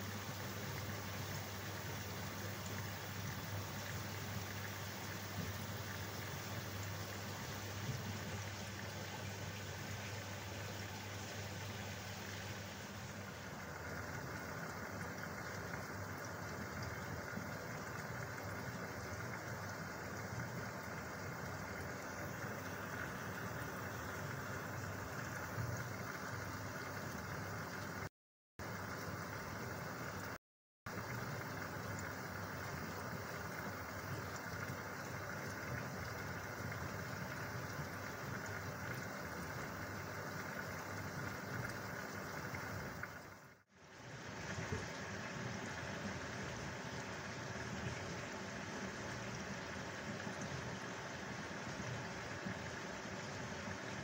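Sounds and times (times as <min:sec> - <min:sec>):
aquarium equipment humming: 0:00.0 - 0:54.0
faint fizz of moving water: 0:00.0 - 0:54.0.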